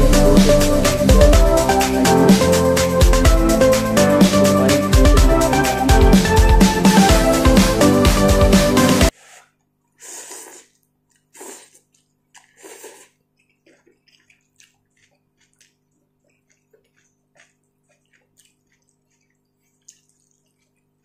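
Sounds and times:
person slurping noodles: 8.8s - 21.0s
faint chewing: 9.1s - 21.0s.

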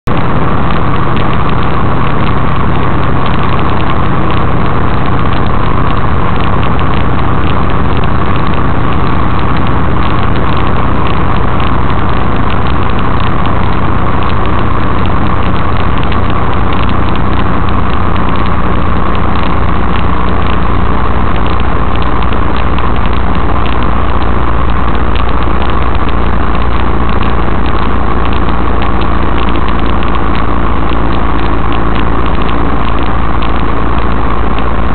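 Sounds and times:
truck engine and road noise: 0.0s - 34.9s.

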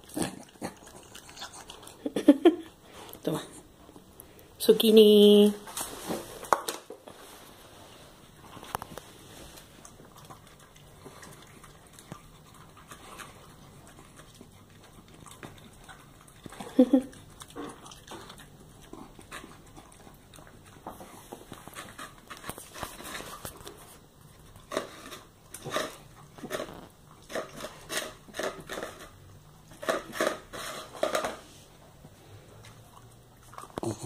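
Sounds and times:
dog licking and eating: 0.0s - 4.1s, 8.3s - 34.0s
plastic lid scraping on tiles: 29.8s - 31.5s.

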